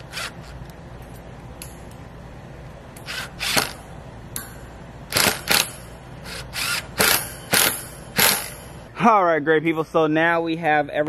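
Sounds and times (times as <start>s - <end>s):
cordless drill driving screws into wood: 3.0s - 3.8s, 6.3s - 8.5s.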